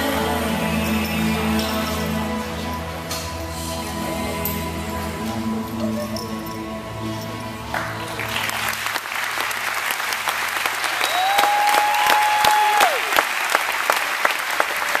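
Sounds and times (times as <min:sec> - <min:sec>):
music: 0:00.0 - 0:11.6
audience applauding and cheering: 0:07.6 - 0:15.0
long held cheer: 0:10.6 - 0:15.0.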